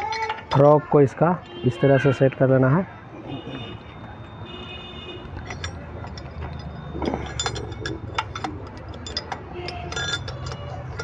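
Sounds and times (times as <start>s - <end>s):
light metallic clinks: 5.2s - 11.0s.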